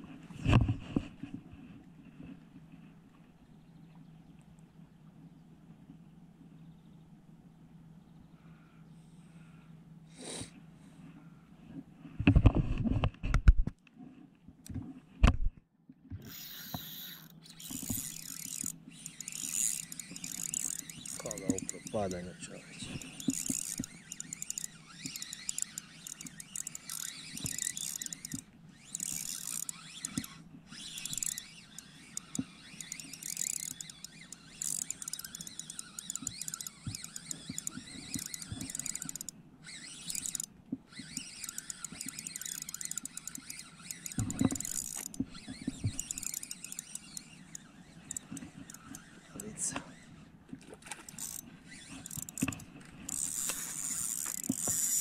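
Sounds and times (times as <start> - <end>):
fishing reel clicking: 16.2 - 50.2, 50.8 - 55.0.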